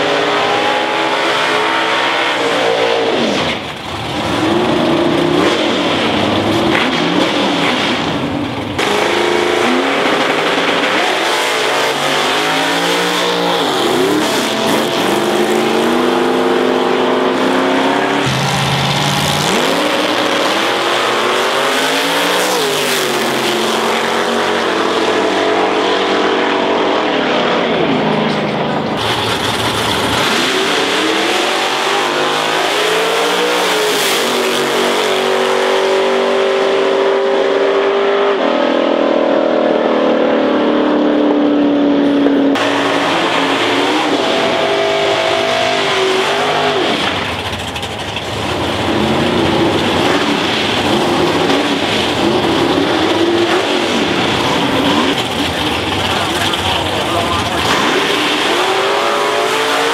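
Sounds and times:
race car engines revving: 0.0 - 59.9.

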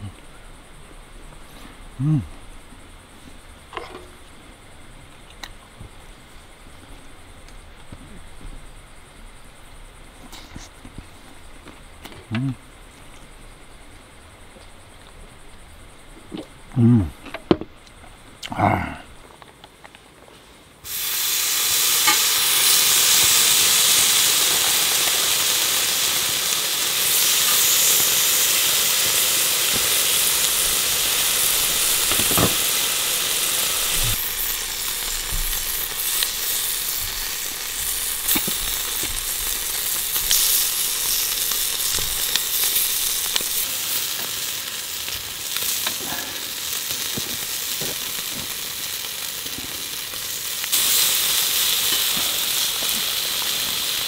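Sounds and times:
chicken sizzling on a grill plate: 20.8 - 54.0.

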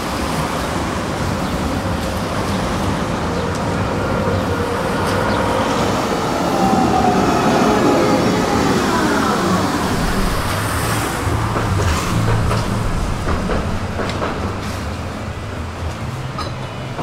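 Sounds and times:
tram rumble: 0.0 - 17.0
tram motor whine: 2.5 - 17.0.

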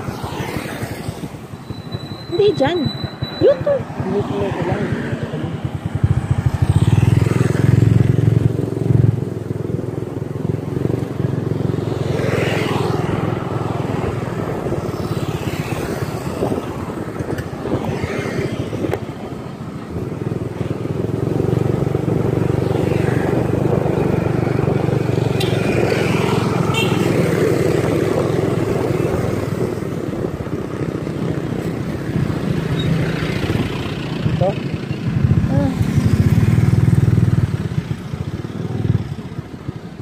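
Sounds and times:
wind rushing on microphone: 0.0 - 40.0
motorcycle engine running: 1.1 - 12.2, 19.8 - 40.0.

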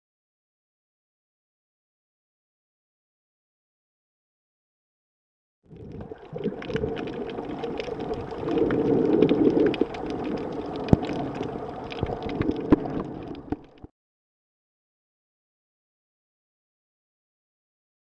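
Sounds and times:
underwater water rushing and gurgling: 5.7 - 13.9
sharp underwater clicks and knocks: 5.8 - 13.9.

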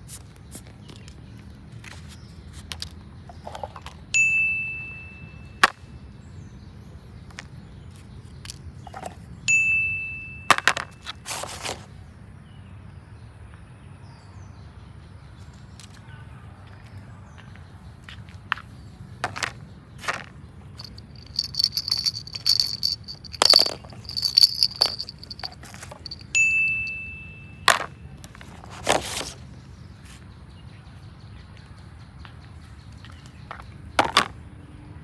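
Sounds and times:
bright ding: 4.2 - 5.3, 26.4 - 27.6
plastic toys knocking on concrete: 19.2 - 26.4, 33.5 - 34.3
toy baby rattle jingling: 20.8 - 27.0.

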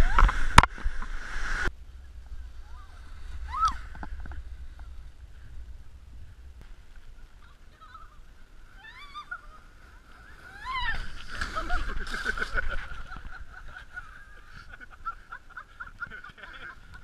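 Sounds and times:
tube scraping through snow: 9.5 - 13.7.

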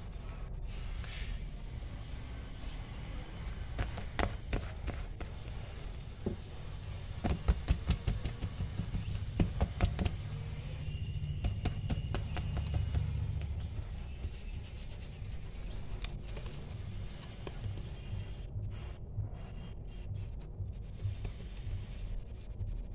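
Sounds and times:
low steady hum: 0.0 - 22.9
hands handling paper: 11.4 - 18.2.

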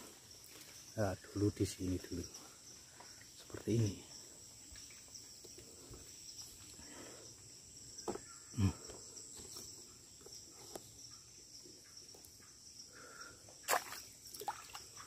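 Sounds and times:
insects chirring: 0.0 - 15.0
soft knocks and thumps: 8.0 - 8.3.

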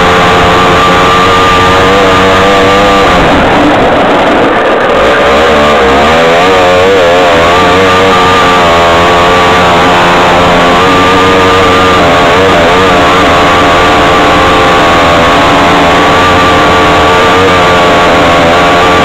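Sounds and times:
buggy engine running hard: 0.0 - 19.0.

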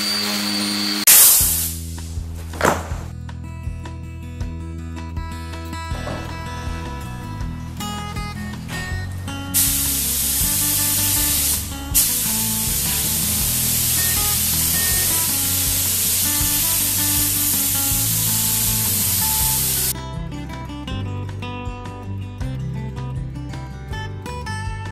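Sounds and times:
spray gun hissing: 0.0 - 3.1, 7.9 - 19.9
acoustic guitar music: 1.1 - 24.9.

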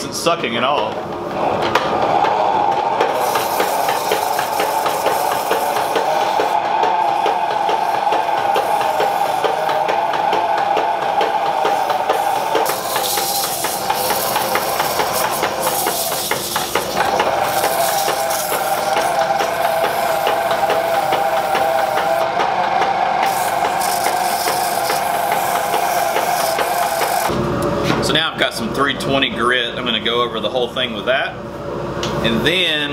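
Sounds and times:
dust collector whining: 1.1 - 28.2
sandpaper rubbing on spinning wood: 3.2 - 6.6, 11.3 - 22.2, 23.2 - 27.3.

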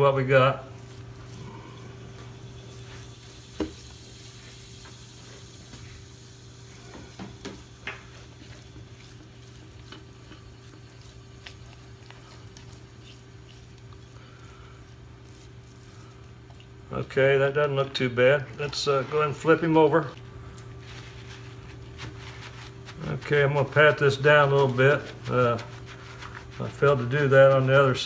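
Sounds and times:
hands rubbing chicken skin: 0.0 - 16.9, 17.7 - 28.0
steady low hum: 0.0 - 28.0.

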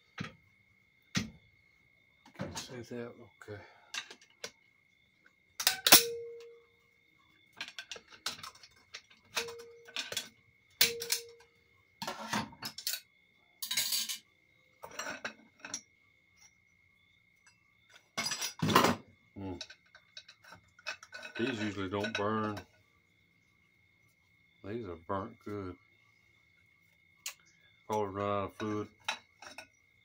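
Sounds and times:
metal plates clinking: 5.6 - 6.6, 7.6 - 14.2, 14.8 - 15.9, 18.1 - 19.0, 19.6 - 22.6, 28.5 - 29.8.

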